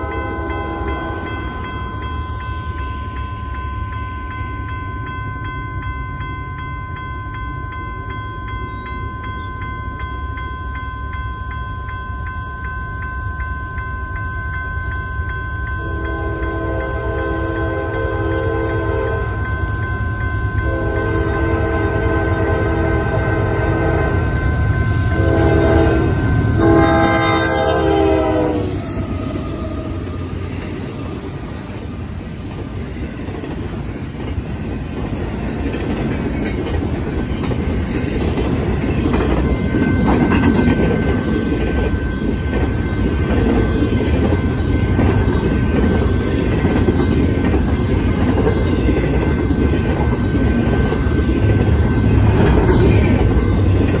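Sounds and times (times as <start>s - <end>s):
train chime horn: 0.0s - 32.0s
crossing bell ringing: 0.0s - 54.0s.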